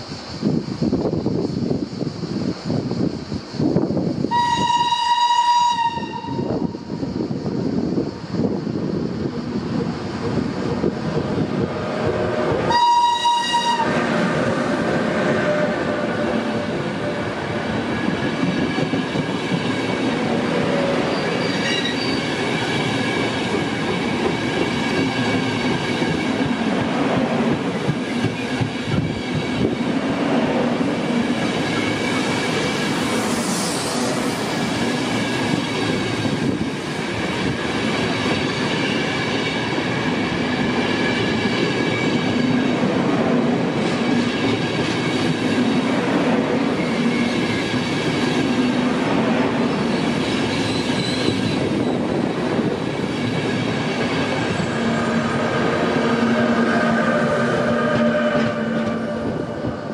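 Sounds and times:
train wheels rumbling on track: 0.0 - 59.9
high-pitched wheel squeal: 20.7 - 22.4, 49.9 - 51.6, 54.6 - 59.6.

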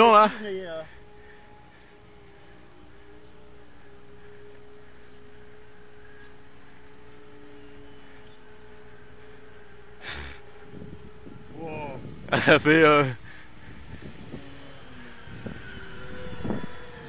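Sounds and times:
model plane motors whining: 0.0 - 17.0.

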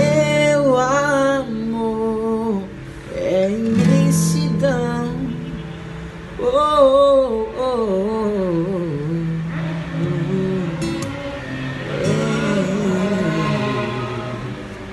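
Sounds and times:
man singing long sliding notes: 0.0 - 5.5, 6.4 - 14.9
strummed acoustic guitar: 0.0 - 14.9.

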